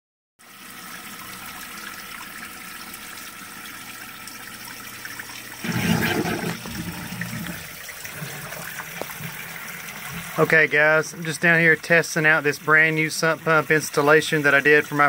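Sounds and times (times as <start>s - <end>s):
water splashing into a basin: 0.8s - 10.5s.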